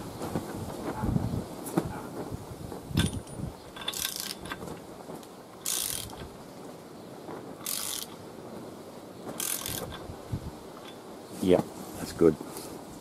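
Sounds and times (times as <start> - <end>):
socket ratchet clicking: 3.8 - 4.6, 5.6 - 6.3, 7.6 - 8.2, 9.4 - 10.0.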